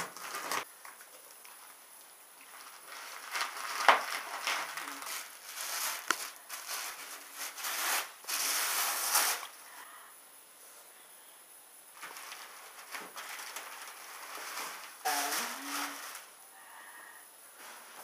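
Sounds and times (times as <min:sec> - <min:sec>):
paper and bubble wrap rustling: 0:00.0 - 0:01.7, 0:02.4 - 0:09.6, 0:12.0 - 0:16.4, 0:17.6 - 0:18.0.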